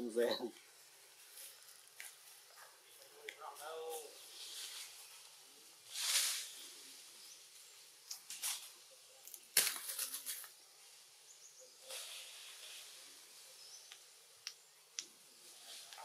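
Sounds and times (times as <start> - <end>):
leaves and twigs rustling: 0.1 - 16.0.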